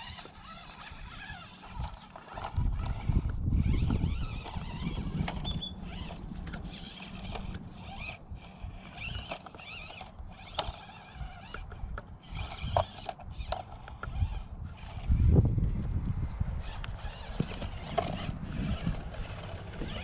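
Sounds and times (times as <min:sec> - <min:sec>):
birds chirping: 0:00.0 - 0:08.1
small electric motor whirring: 0:00.0 - 0:20.0.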